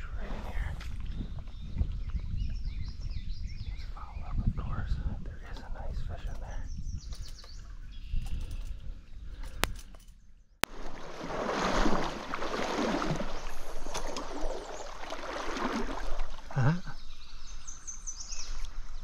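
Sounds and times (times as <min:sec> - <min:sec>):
faint clicks: 0:07.1 - 0:10.2
stream water rushing and splashing: 0:10.6 - 0:16.6.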